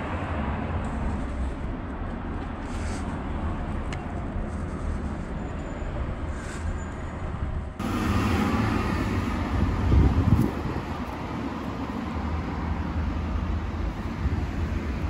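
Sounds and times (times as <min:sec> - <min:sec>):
distant traffic hum: 0:00.0 - 0:15.0.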